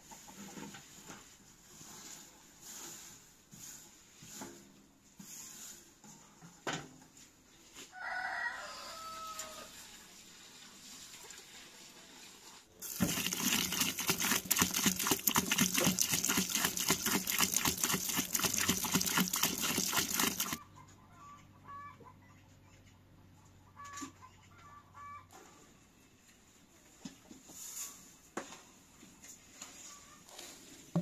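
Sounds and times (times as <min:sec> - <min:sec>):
rooster crowing: 0:07.9 - 0:09.8
water pouring and splashing: 0:12.8 - 0:20.6.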